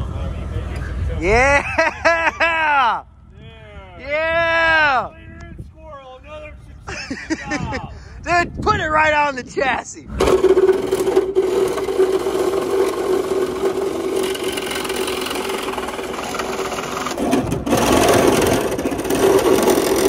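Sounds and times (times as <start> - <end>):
lifting machine motor whirring: 10.1 - 20.0.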